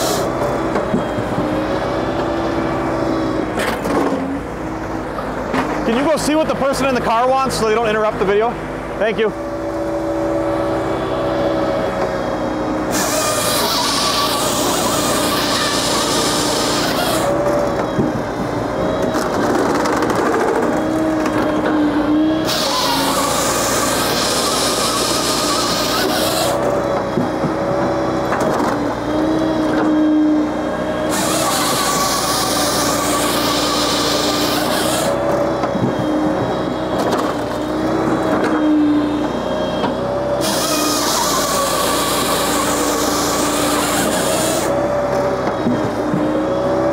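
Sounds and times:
saw chain cutting log: 0.0s - 0.8s, 12.8s - 18.0s, 18.9s - 30.1s, 30.8s - 38.8s, 40.2s - 46.9s
engine and hydraulics drone: 0.0s - 46.9s.

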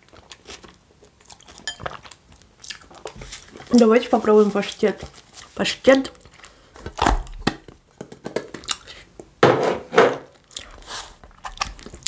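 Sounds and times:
food packaging crinkling: 0.0s - 7.8s, 10.3s - 12.0s.

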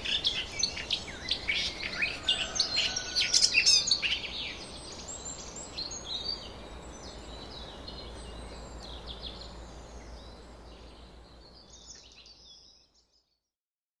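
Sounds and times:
outdoor background hiss: 0.0s - 13.4s
songbird chirping: 0.0s - 13.4s.

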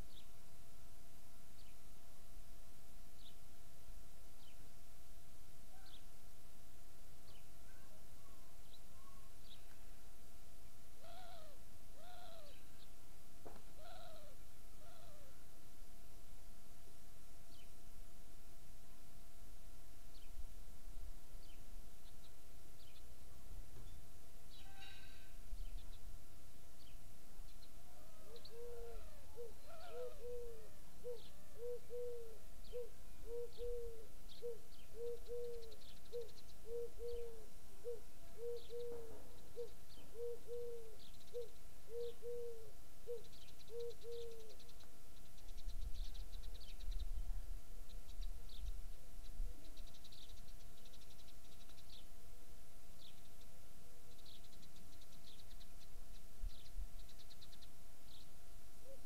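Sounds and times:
small birds chirping: 7.2s - 10.0s, 21.3s - 52.2s, 52.9s - 59.0s
dove cooing: 11.0s - 12.6s, 13.8s - 15.4s, 27.8s - 44.6s.

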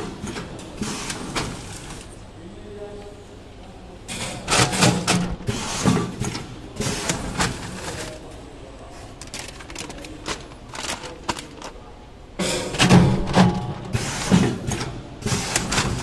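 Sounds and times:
plastic pouches crinkling: 7.0s - 12.0s.

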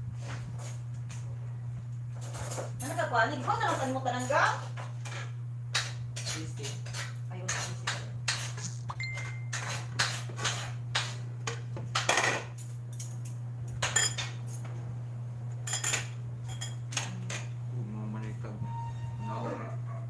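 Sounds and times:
steady low hum: 0.0s - 20.0s
cutlery clinking against plates: 5.0s - 14.7s, 15.6s - 17.5s.

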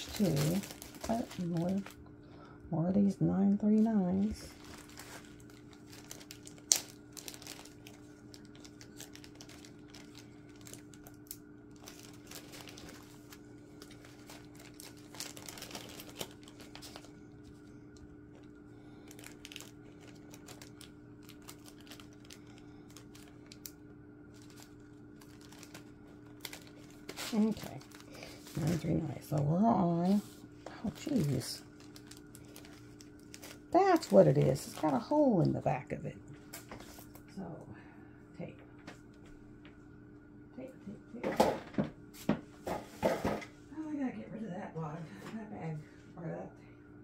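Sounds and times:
plastic bags crinkling: 0.0s - 2.1s, 3.6s - 35.6s
steady low hum: 0.0s - 47.0s.

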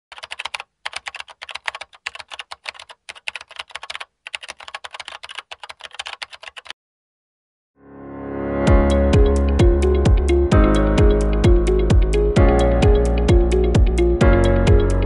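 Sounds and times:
computer keyboard typing: 0.1s - 6.8s.

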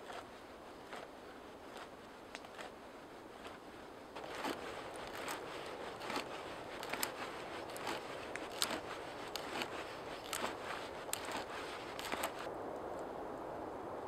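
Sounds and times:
auger scraping through wood: 0.0s - 12.5s
wood clicks and creaks: 4.2s - 5.4s, 6.0s - 12.5s.

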